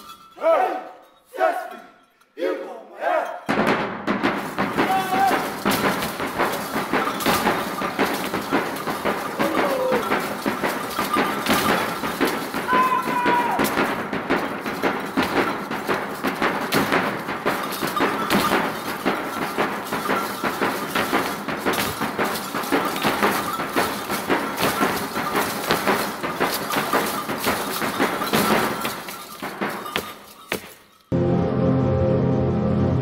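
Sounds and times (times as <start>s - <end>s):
stomping: 3.4s - 31.1s
drum beats: 3.5s - 31.0s
music track: 31.1s - 33.0s.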